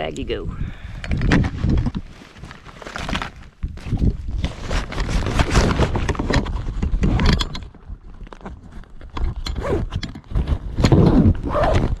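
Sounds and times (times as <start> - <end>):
bag and plastic packages rustling: 1.2 - 6.8.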